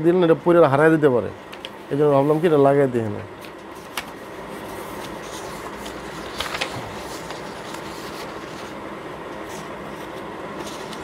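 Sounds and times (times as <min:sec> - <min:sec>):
fan-like room noise: 0:00.0 - 0:11.0
paper rustling: 0:03.4 - 0:11.0.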